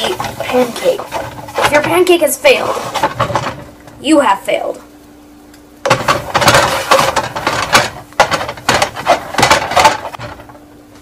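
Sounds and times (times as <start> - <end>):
spatula scraping a frying pan: 0.0 - 3.6, 5.9 - 10.4.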